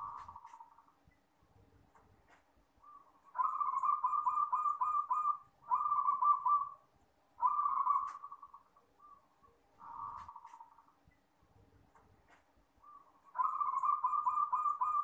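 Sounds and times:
dove cooing: 0.0 - 0.8, 2.8 - 6.8, 7.4 - 10.8, 12.8 - 15.0.

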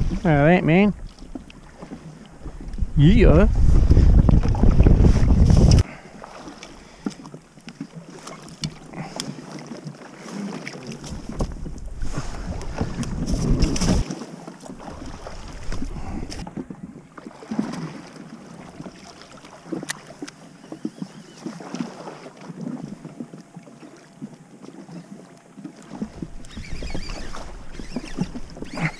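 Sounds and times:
wind buffeting microphone: 0.0 - 5.9, 11.0 - 14.0, 25.9 - 28.9.

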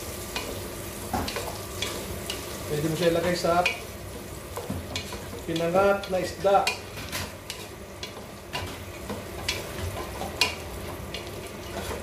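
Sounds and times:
meat sizzling in fat: 0.0 - 12.0
wooden spoon knocking and scraping pot: 4.5 - 12.0.

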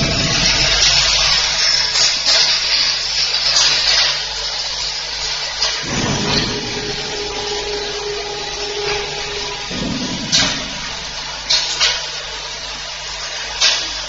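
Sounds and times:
steady hum tone: 0.0 - 2.9, 5.8 - 13.5
vibratory feeder buzzing: 5.8 - 11.8.

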